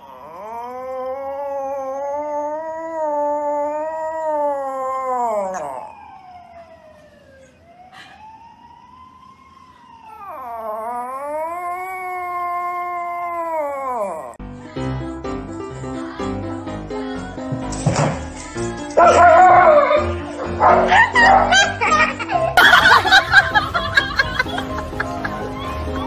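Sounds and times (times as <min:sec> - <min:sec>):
small dog howling: 0:00.0 - 0:06.2, 0:10.0 - 0:14.4, 0:19.0 - 0:20.1.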